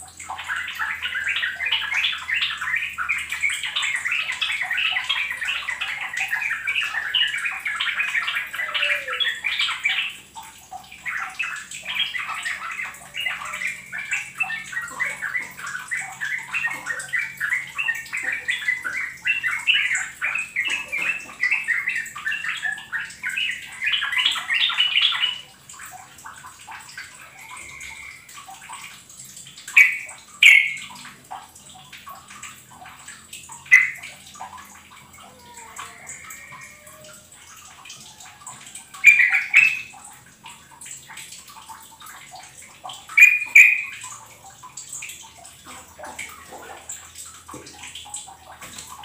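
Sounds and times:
bird chattering calls: 29.7s - 30.8s.

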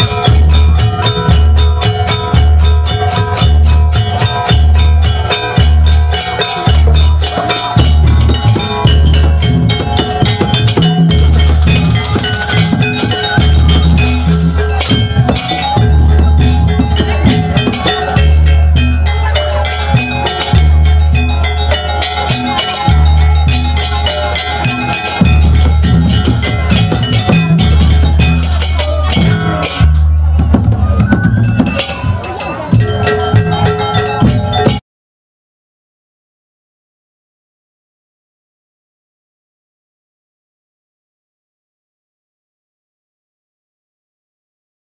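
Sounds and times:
gamelan music: 0.0s - 34.8s
hand drums beating: 0.0s - 34.8s
ringing metallophones: 0.0s - 34.8s.

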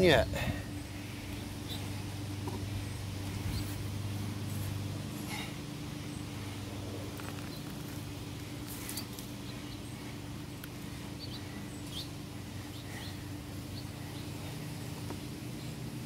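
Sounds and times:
low mechanical hum: 0.0s - 16.0s
bird chirps: 11.2s - 14.4s.

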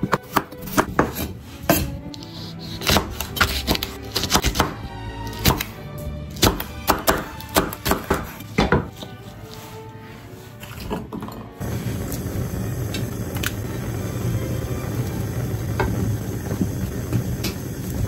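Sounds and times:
knife chopping on wooden board: 0.0s - 1.9s, 2.6s - 4.8s, 6.4s - 9.0s
background music: 0.0s - 18.0s.

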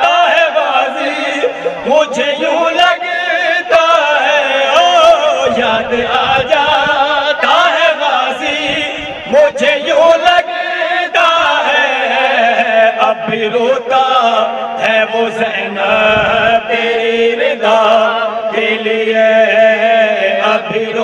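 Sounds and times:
men singing through microphones: 0.0s - 21.0s.

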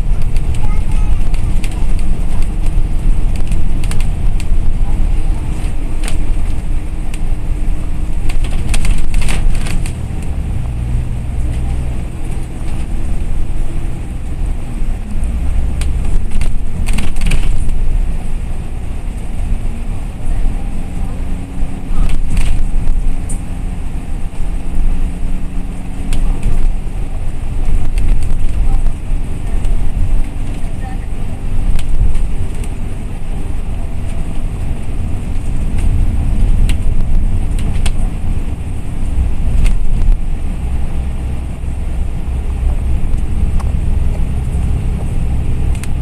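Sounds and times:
bus engine and road rumble: 0.0s - 46.0s.

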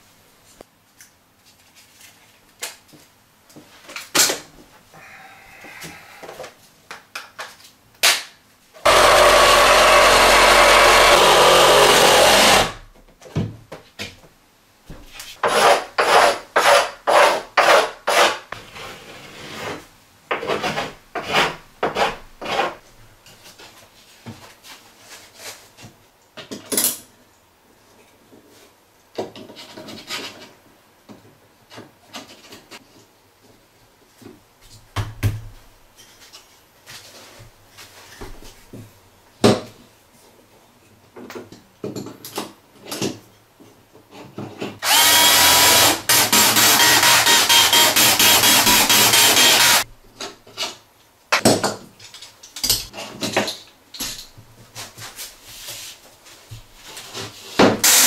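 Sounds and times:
power tool running: 8.9s - 12.8s, 44.8s - 49.8s.

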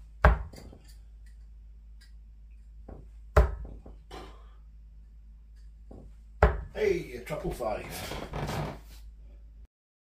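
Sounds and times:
dart striking dartboard: 2.9s - 3.9s, 5.9s - 6.8s
small knocks: 5.6s - 6.8s.

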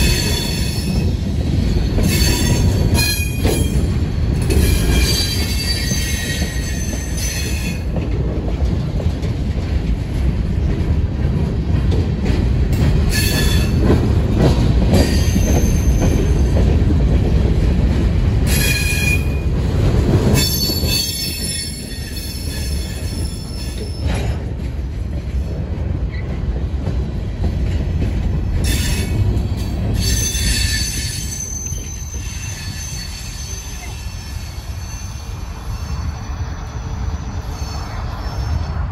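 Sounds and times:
train wheels rumbling on rail: 0.0s - 38.9s
high-pitched wheel squeal: 4.5s - 7.8s, 30.0s - 38.8s.

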